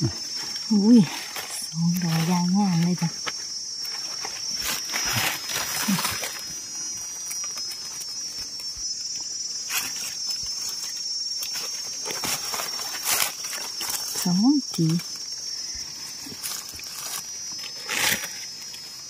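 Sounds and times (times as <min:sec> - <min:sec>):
insects droning: 0:00.0 - 0:19.0
rustling of dry leaf litter: 0:00.0 - 0:19.0.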